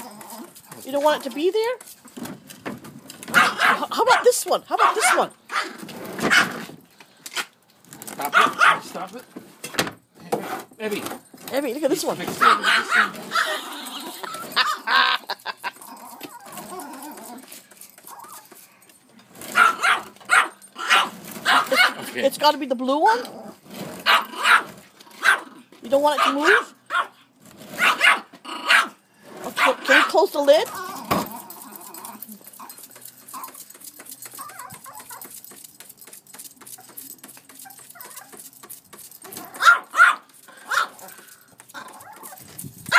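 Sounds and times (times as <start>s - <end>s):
dog barking: 3.3s - 6.6s, 8.3s - 8.9s, 12.4s - 13.6s, 19.5s - 22.1s, 24.0s - 25.5s, 26.2s - 27.2s, 27.8s - 29.0s, 29.6s - 30.2s, 39.6s - 41.0s.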